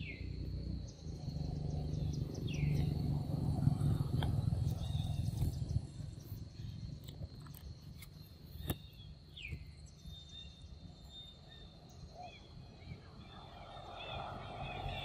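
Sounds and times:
low rumble: 0.0 - 7.0.

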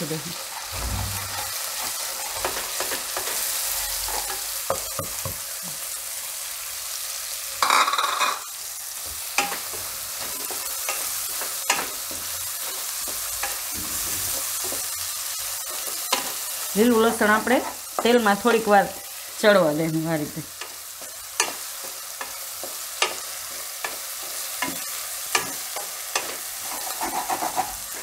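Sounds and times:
garlic sizzling in hot oil: 0.0 - 28.0
spatula scraping pan: 20.6 - 28.0.

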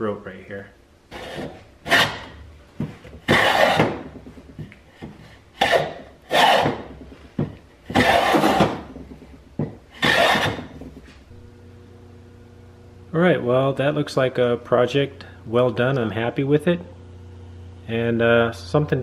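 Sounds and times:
hand plane shaving wood: 1.2 - 2.4, 3.2 - 4.1, 5.6 - 6.9, 7.9 - 8.9, 10.0 - 10.8.

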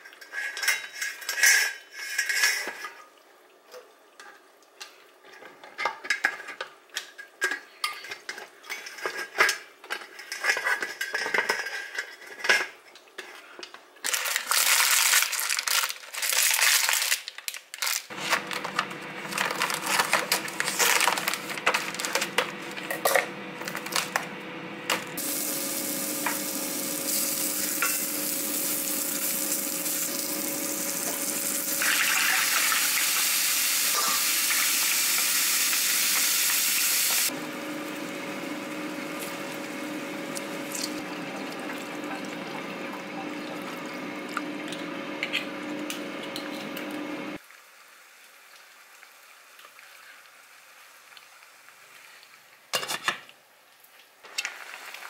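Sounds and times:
cookware clattering: 0.1 - 3.0, 5.3 - 13.4, 27.6 - 29.1
garlic sizzling: 14.1 - 52.5.

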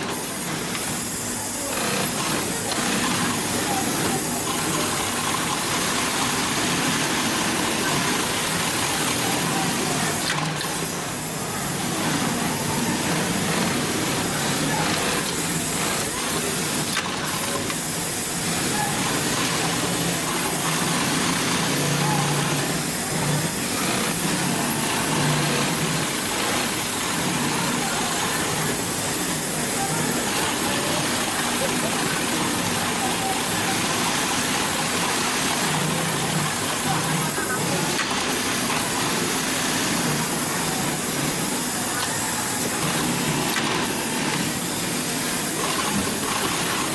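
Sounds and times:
sewing machine stitching leather: 0.0 - 29.0, 29.7 - 46.9.

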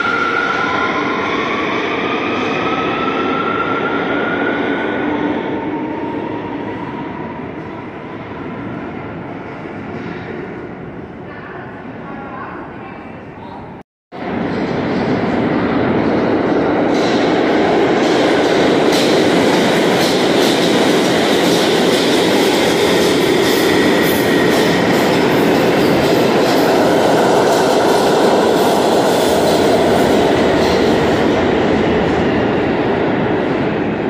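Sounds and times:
train wheels on rail: 14.2 - 34.0.

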